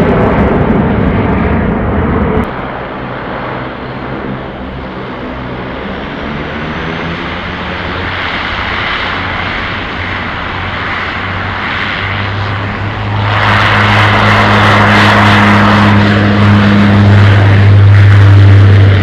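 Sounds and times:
turboprop engines droning: 0.0 - 19.0.

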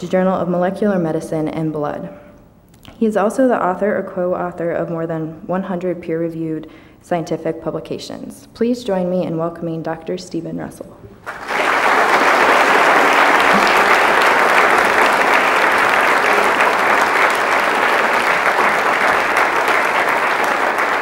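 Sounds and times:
audience applauding: 11.2 - 21.0.

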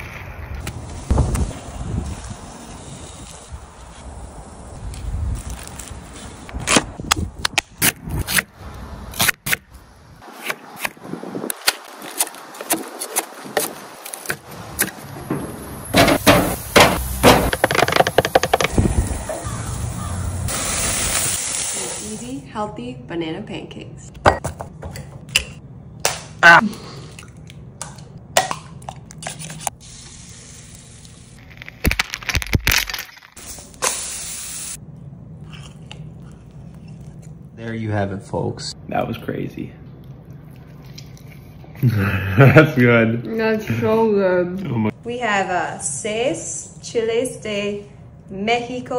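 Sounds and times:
patties crackling on grill: 0.6 - 6.6
steady hiss: 29.8 - 31.5, 33.4 - 34.8.

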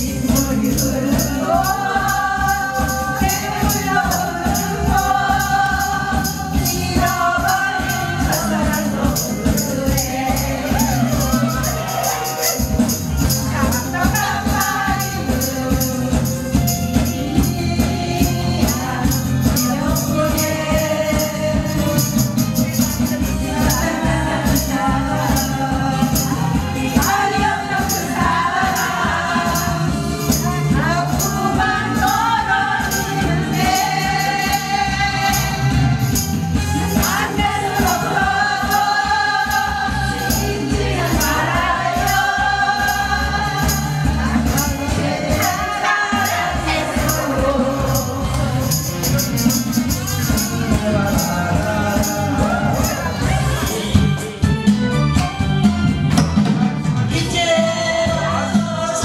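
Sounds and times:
person singing into microphone: 0.0 - 36.2, 36.8 - 54.0, 57.1 - 59.0
upbeat backing track: 0.0 - 59.0.

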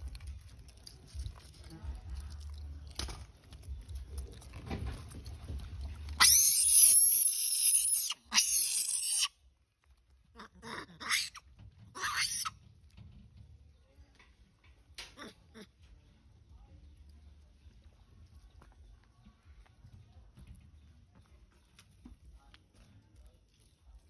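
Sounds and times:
monkey screaming: 6.2 - 9.3, 10.4 - 11.4, 12.0 - 12.5.

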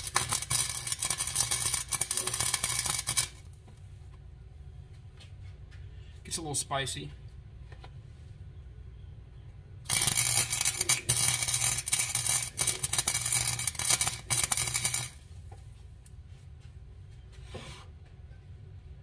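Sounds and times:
welder arc crackling and sizzling: 0.0 - 3.6, 9.9 - 15.2.

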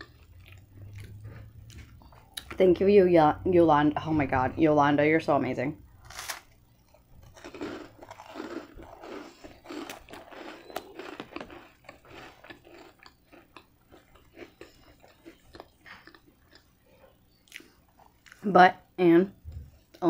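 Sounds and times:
crunchy bread chewing: 0.0 - 2.6, 5.8 - 18.5.

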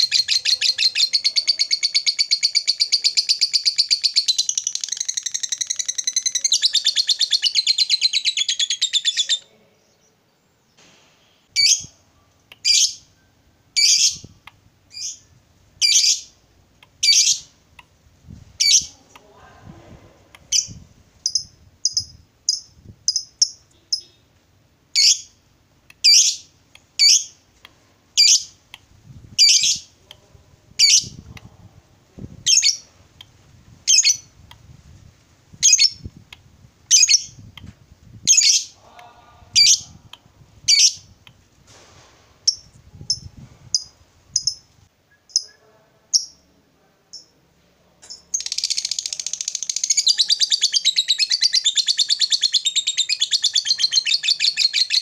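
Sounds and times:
lovebird rapid chatter: 0.0 - 9.3, 48.4 - 55.0
lovebird shrill calls: 0.0 - 9.4, 13.8 - 14.3, 33.9 - 34.3.

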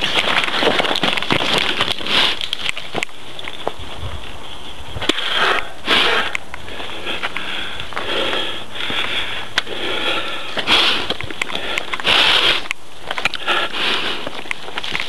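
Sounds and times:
bike clicking and rattling: 0.0 - 4.4, 14.2 - 15.0
hard rhythmic breathing: 0.0 - 15.0.

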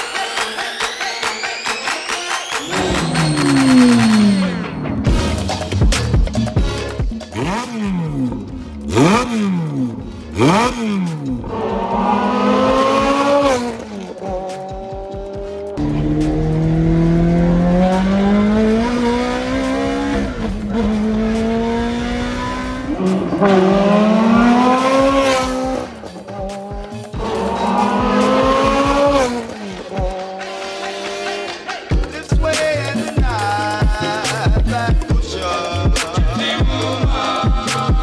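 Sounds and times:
car engine accelerating through gears: 2.6 - 5.5, 7.3 - 31.5
sports car engine revving: 2.6 - 31.6.

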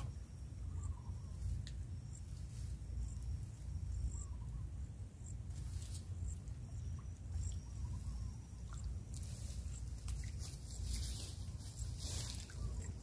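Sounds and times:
insects chirping: 0.0 - 13.0
soft rustles: 9.2 - 12.8.

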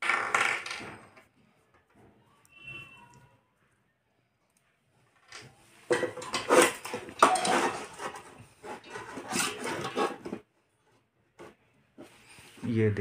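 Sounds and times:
metal screws and nuts clattering: 5.3 - 10.4.

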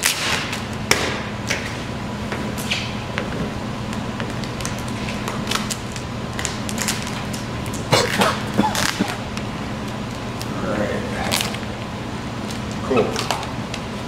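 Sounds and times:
steady background hum: 0.0 - 14.0
vinyl film crackling and rustling: 3.9 - 7.9.

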